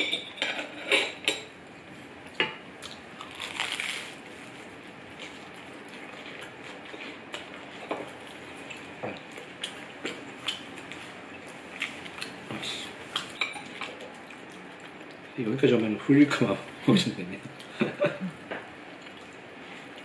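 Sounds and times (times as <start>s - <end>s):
crunching bites into toast: 2.9s - 4.2s.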